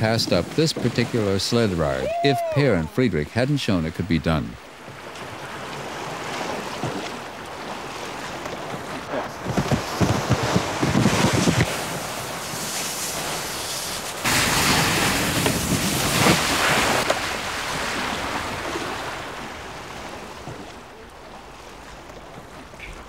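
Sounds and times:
rush of water: 0:00.0 - 0:23.0
canoe hull scraping over snow: 0:04.9 - 0:20.8.

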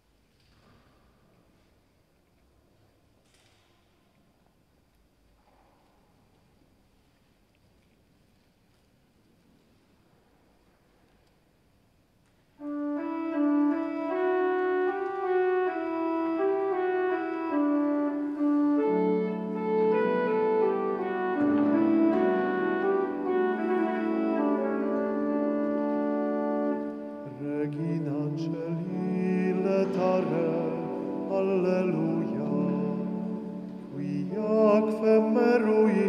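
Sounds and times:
church organ chords: 0:12.6 - 0:36.0
person singing: 0:15.7 - 0:25.8, 0:26.7 - 0:36.0.

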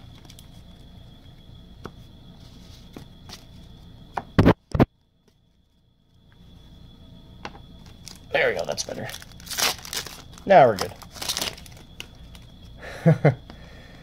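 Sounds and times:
trading cards clicking and rustling: 0:07.8 - 0:12.5.

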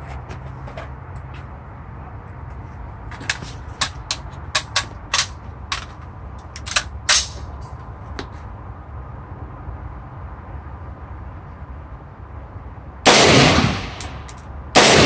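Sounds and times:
rifle and gear clicks and knocks: 0:03.1 - 0:07.8.

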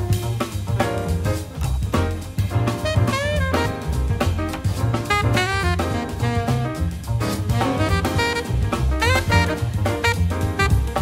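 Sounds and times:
drum kit beat: 0:00.0 - 0:11.0
jazzy music: 0:00.0 - 0:11.0
horn-like notes: 0:02.8 - 0:04.0, 0:05.0 - 0:11.0.

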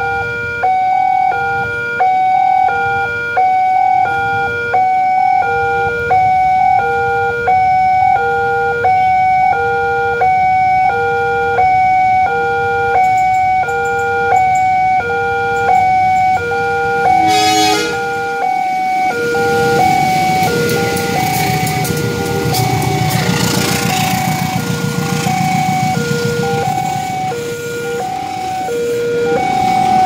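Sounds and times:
level-crossing two-tone alarm: 0:00.0 - 0:30.0
train rumble: 0:15.4 - 0:30.0
horn blast: 0:17.0 - 0:18.4.

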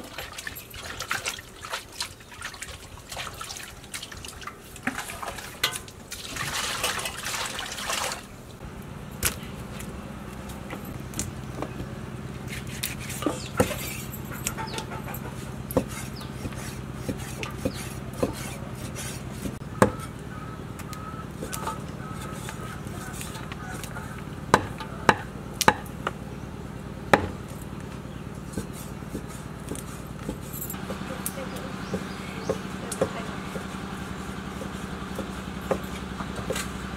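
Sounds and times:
steady low hum: 0:08.4 - 0:36.9.

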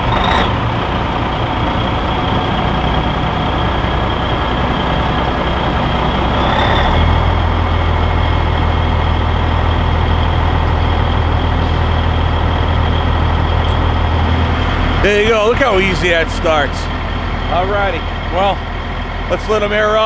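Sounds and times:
diesel truck engine idling: 0:00.0 - 0:20.0.

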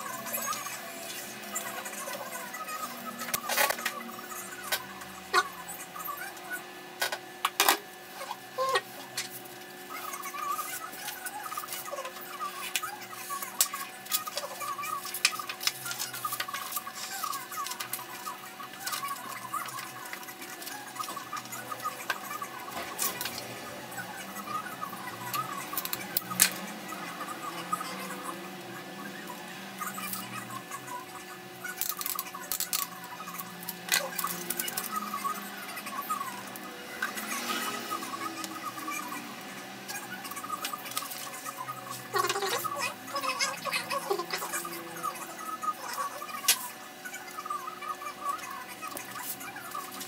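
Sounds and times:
sharp paper ticks: 0:31.7 - 0:35.2.

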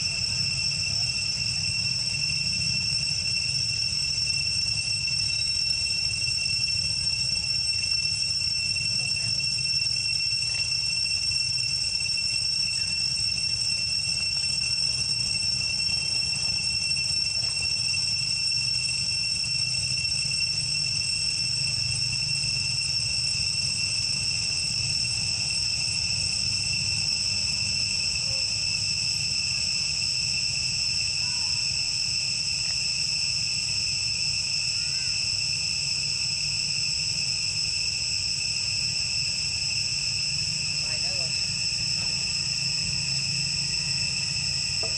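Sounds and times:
high-pitched insect chorus: 0:00.0 - 0:44.9.

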